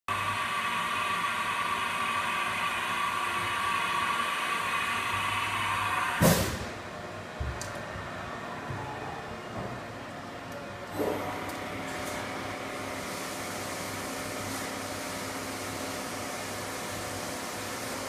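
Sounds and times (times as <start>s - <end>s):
machine whine over hiss: 0.1s - 6.7s
sudden loud burst of noise: 0.1s - 6.8s.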